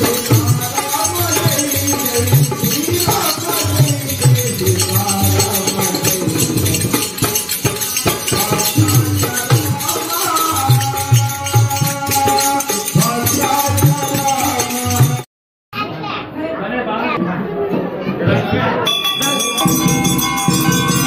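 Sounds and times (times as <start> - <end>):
small hand cymbals clinking: 0.0 - 15.2
two-headed drum beat: 0.0 - 15.2, 19.6 - 21.0.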